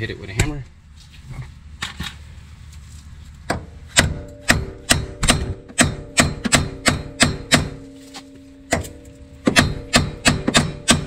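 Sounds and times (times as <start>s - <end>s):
hammer striking metal: 3.5s - 11.0s
metal ringing: 4.0s - 11.0s.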